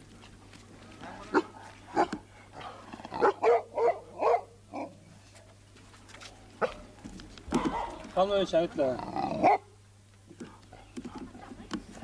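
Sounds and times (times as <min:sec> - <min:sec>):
dog barking: 0:01.3 - 0:02.2, 0:03.2 - 0:05.0, 0:06.6 - 0:06.9, 0:07.5 - 0:08.1, 0:09.4 - 0:09.7.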